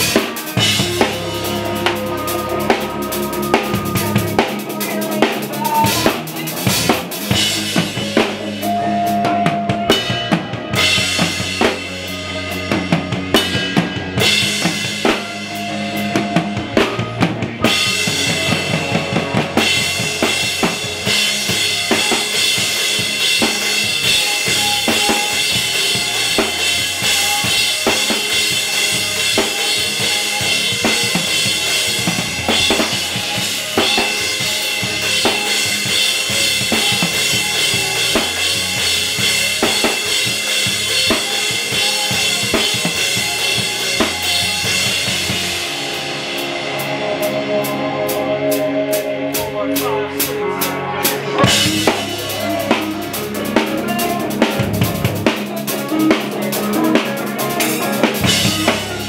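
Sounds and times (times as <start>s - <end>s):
cymbals ringing: 0.0s - 6.3s
steady pitched instruments: 0.0s - 59.0s.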